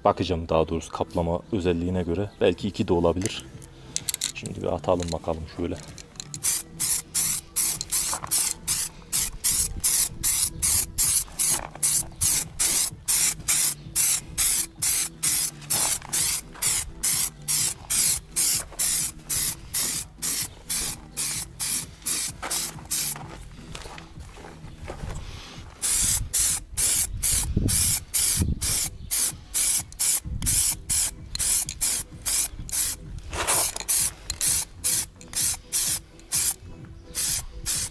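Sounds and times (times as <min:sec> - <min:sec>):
aerosol can spraying in bursts: 0:06.3 - 0:23.2, 0:25.8 - 0:37.9.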